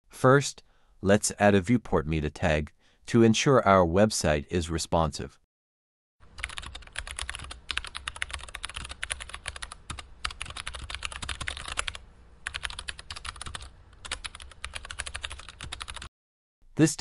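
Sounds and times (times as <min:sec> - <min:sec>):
keyboard typing: 0:06.3 - 0:16.1.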